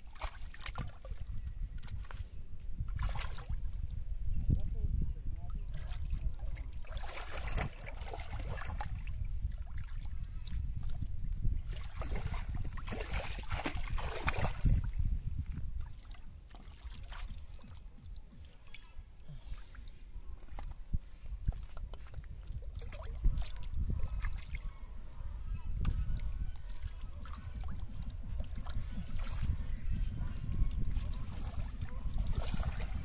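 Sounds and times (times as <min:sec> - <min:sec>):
water splashing and sloshing: 0:00.0 - 0:04.3, 0:05.4 - 0:33.0.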